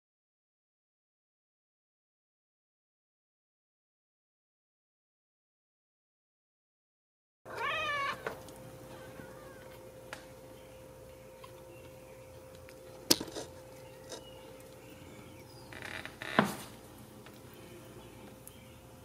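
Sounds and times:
faint steady hum: 7.5s - 19.0s.

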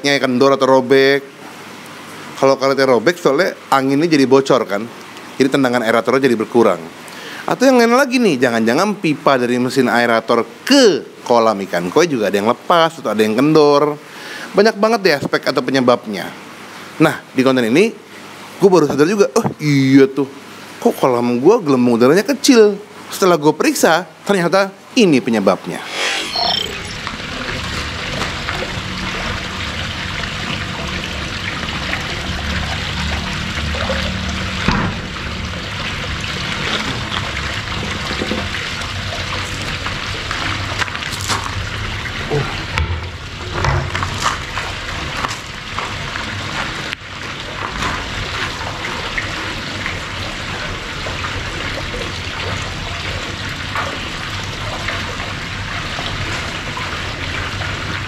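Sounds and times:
small waterfall splashing into pond: 27.1s - 58.0s.

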